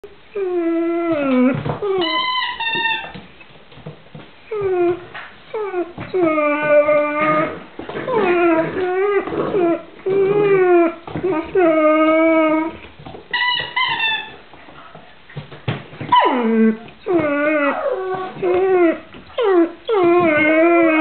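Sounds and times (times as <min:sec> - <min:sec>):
puppy whining and howling: 0:00.3 - 0:02.3, 0:04.5 - 0:12.8, 0:16.1 - 0:21.0.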